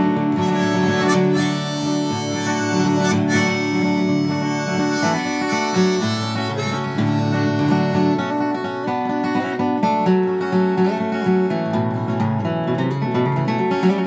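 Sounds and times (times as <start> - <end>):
harmonica melody: 0.0 - 9.6
flatpicked acoustic guitar: 0.0 - 14.0.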